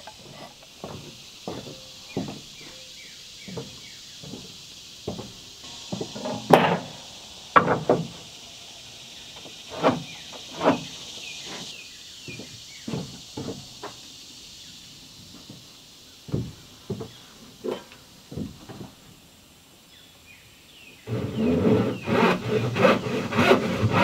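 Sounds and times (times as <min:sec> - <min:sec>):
footsteps on wooden deck: 0:00.0 - 0:06.9, 0:09.4 - 0:14.1, 0:15.3 - 0:19.2
insects buzzing: 0:00.0 - 0:24.0
wooden knocks and thumps: 0:00.2 - 0:02.8, 0:03.5 - 0:06.9, 0:07.6 - 0:08.2, 0:16.3 - 0:19.0.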